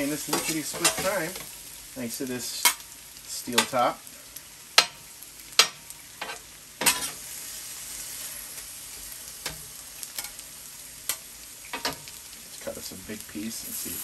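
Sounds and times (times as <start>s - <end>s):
metal spatula scraping on steel: 0.0s - 1.6s, 5.6s - 7.2s
food sizzling on a griddle: 0.0s - 14.0s.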